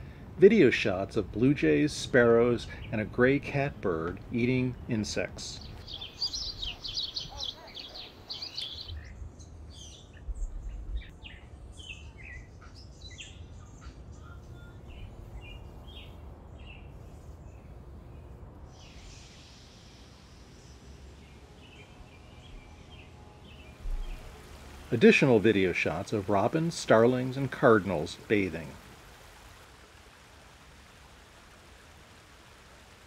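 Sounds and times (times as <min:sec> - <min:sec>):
small songbirds chirping: 0:04.1 - 0:29.8.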